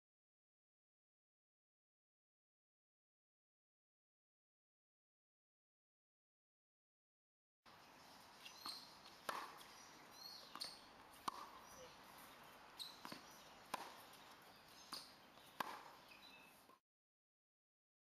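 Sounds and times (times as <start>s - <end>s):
birds chirping: 7.7s - 16.8s
tennis balls struck by rackets: 7.7s - 16.8s.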